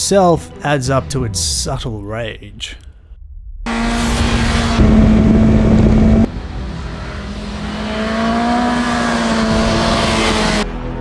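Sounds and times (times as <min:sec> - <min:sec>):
motorcycle engine at high revs: 0:07.0 - 0:10.6.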